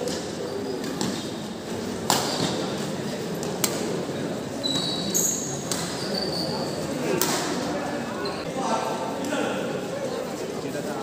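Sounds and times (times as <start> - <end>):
racket hitting shuttlecock: 2.0 - 2.7, 3.4 - 4.0, 5.6 - 6.0, 7.1 - 7.6
short high squeak: 4.6 - 6.8.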